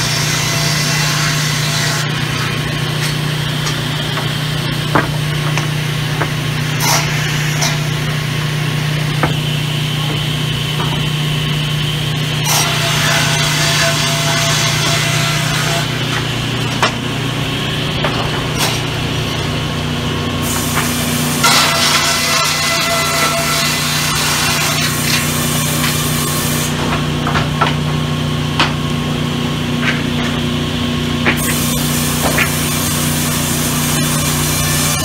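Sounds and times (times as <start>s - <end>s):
saw blade cutting timber: 0.0s - 3.8s, 6.6s - 8.0s, 12.4s - 16.9s, 20.4s - 26.8s, 31.3s - 35.0s
sawmill motor hum: 0.0s - 35.0s
boards knocking: 4.1s - 6.4s, 26.8s - 28.8s.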